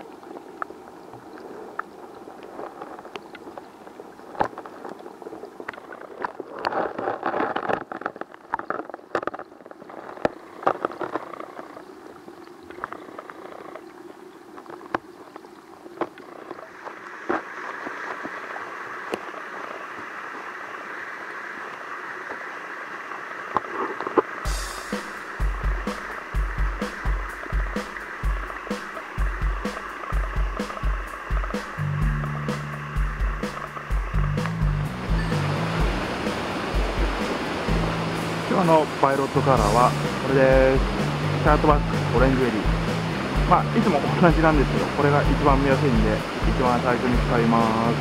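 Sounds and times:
flowing water rushing: 0.0 - 48.0
underwater gurgling and bubbling: 0.0 - 48.0
sharp underwater clicks and knocks: 0.6 - 18.5, 23.5 - 24.4, 25.2 - 37.9.

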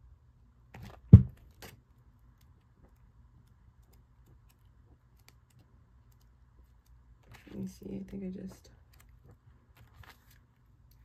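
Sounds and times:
book pages rustling: 8.9 - 11.0.

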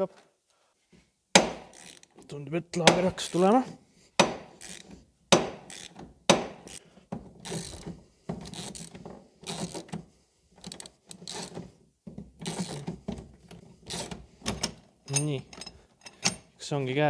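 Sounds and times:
bearing cracking loose: 1.4 - 2.3, 4.3 - 10.0, 12.3 - 13.1
ratchet handle clicking: 1.7 - 2.1, 4.6 - 4.9, 5.6 - 6.0, 6.6 - 6.8, 7.4 - 10.0, 10.6 - 11.6.

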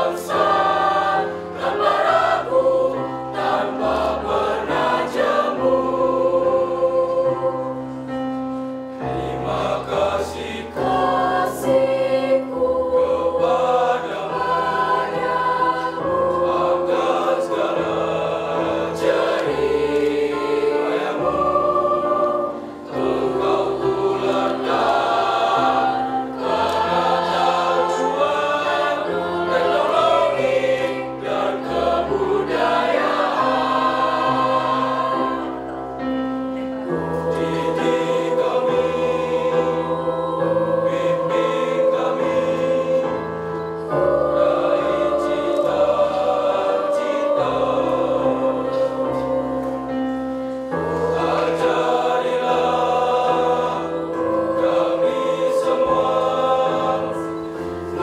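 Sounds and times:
children's choir singing: 0.0 - 58.0.

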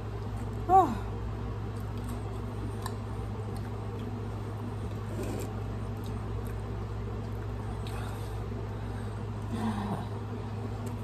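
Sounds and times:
steady low hum: 0.0 - 11.0
person chewing: 4.8 - 8.1.

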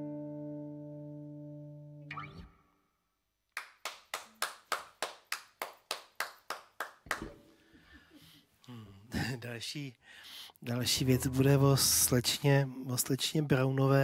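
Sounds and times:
electric guitar chord ringing: 0.0 - 2.6
people clapping: 3.5 - 7.5.

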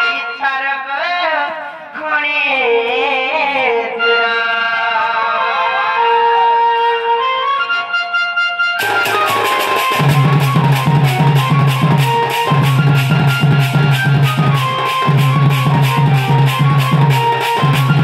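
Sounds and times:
harmonium: 0.0 - 18.0
ornamented folk melody: 4.0 - 18.0
drums beating fast: 8.8 - 18.0.

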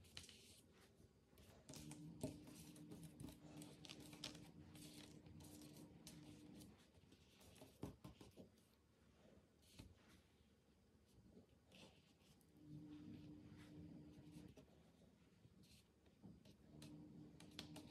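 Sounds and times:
soft taps and rustles of dough: 0.0 - 8.8
faint steady hum: 0.0 - 17.9.

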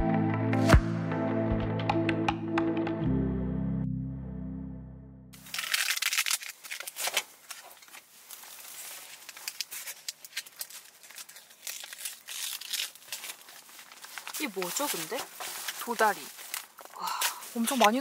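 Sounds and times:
background music: 0.0 - 5.4
food packaging crinkling: 5.4 - 18.0.

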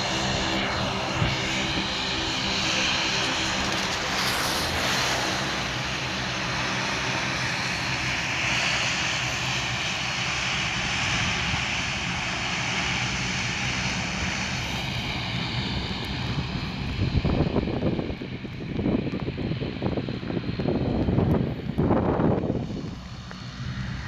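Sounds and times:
turboprop engines droning: 0.0 - 24.0.

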